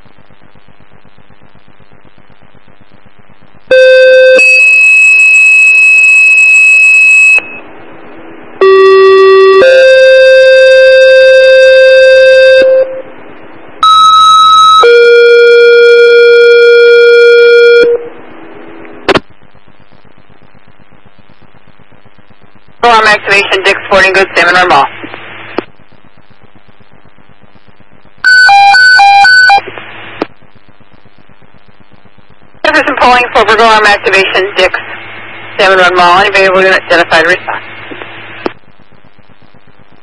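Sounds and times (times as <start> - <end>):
radio hiss: 18.2 - 28.2, 29.5 - 40.0
radio click: 18.8 - 19.4, 23.4 - 25.9, 29.6 - 30.4, 36.8 - 38.6.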